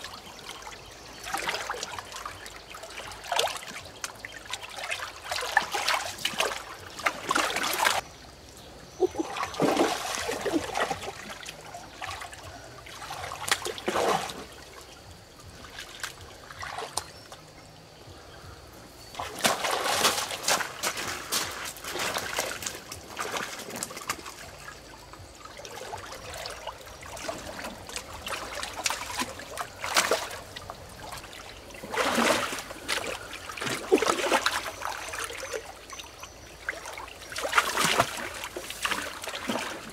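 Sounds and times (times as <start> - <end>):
water splashing: 0.0 - 8.1, 8.9 - 17.6, 19.0 - 39.9
running water trickle: 0.0 - 39.9.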